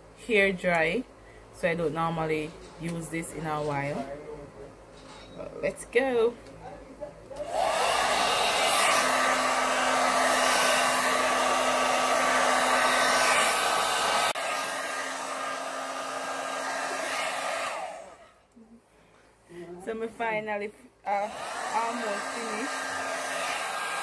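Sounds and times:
hair dryer blowing: 0:07.4 - 0:18.4, 0:21.1 - 0:24.0.

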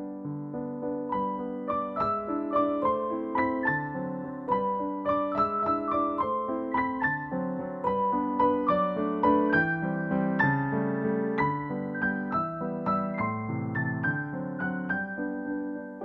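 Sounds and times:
piano music: 0:00.0 - 0:16.0.

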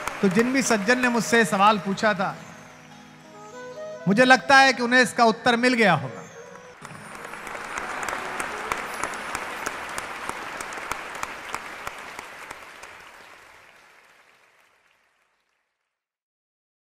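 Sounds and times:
sharp individual claps: 0:00.0 - 0:02.2, 0:06.5 - 0:15.0
audience applauding: 0:00.0 - 0:03.5, 0:05.8 - 0:15.9.

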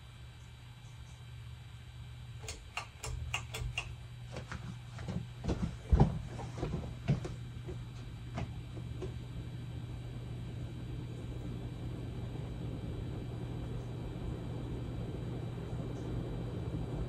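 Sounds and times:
ceiling fan motor humming: 0:00.0 - 0:17.0.

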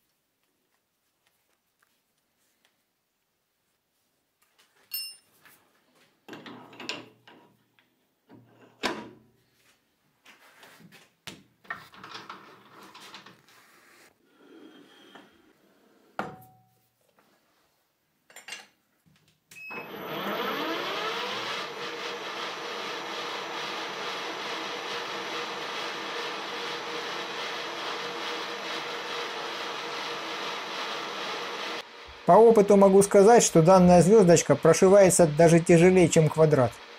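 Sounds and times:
lathe motor whining: 0:19.7 - 0:36.9.

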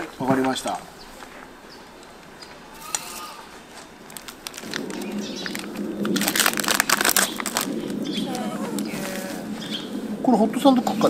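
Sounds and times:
plastic packaging crinkling: 0:03.7 - 0:09.5.

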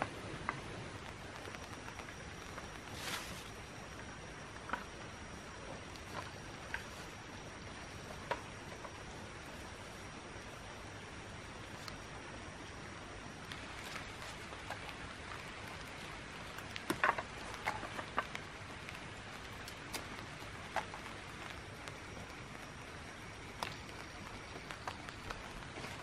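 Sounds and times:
steady background hiss: 0:00.0 - 0:26.0
shrub stems snapping and rustling: 0:00.4 - 0:03.7, 0:13.5 - 0:26.0.

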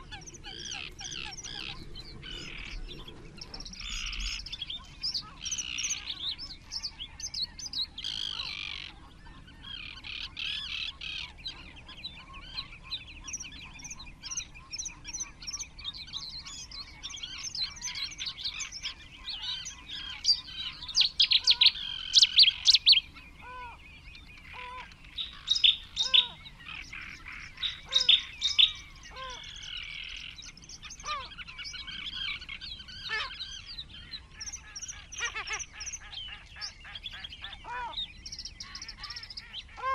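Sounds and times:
birds singing: 0:00.0 - 0:39.9
sharp repeated bird calls: 0:16.4 - 0:32.4.

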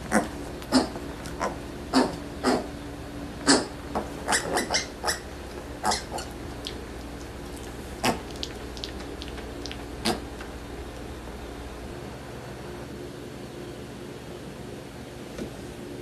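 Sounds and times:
piglets squeaking and grunting: 0:00.1 - 0:02.7, 0:03.4 - 0:06.8, 0:07.5 - 0:10.3.

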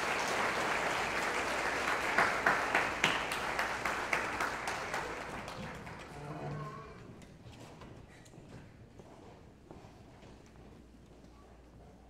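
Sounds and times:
loud single claps: 0:00.0 - 0:05.9
audience applauding: 0:00.0 - 0:06.3.

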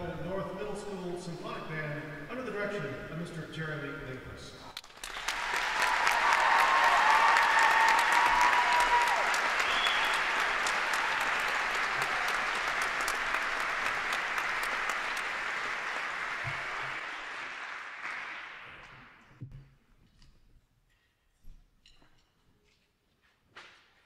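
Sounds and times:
audience applauding: 0:04.8 - 0:19.2.

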